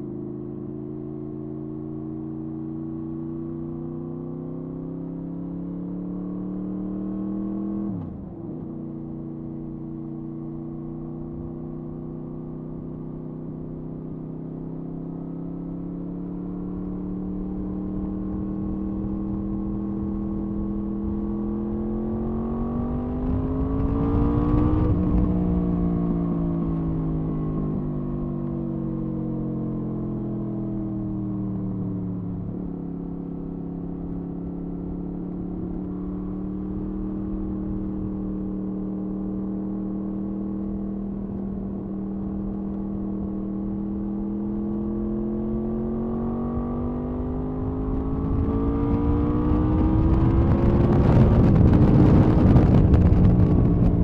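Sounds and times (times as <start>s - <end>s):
motorcycle engine revving: 16.6s - 26.4s, 34.4s - 54.0s
wind noise on microphone: 22.6s - 25.8s, 47.7s - 54.0s.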